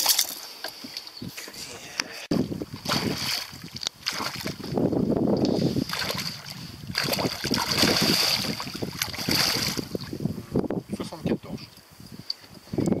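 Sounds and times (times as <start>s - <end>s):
wind buffeting microphone: 1.2s - 13.0s
fish splashing at water surface: 2.8s - 4.7s, 5.8s - 9.9s.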